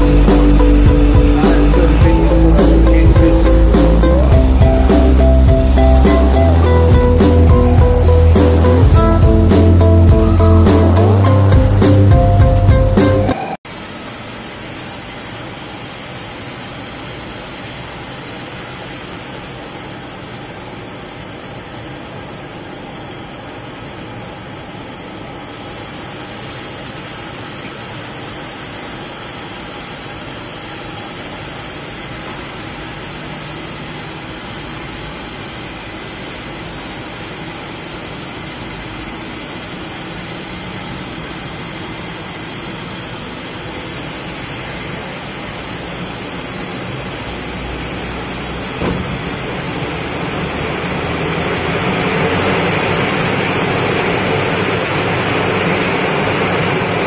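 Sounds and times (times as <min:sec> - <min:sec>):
lathe whirring: 0:00.0 - 0:13.6, 0:28.1 - 0:57.0.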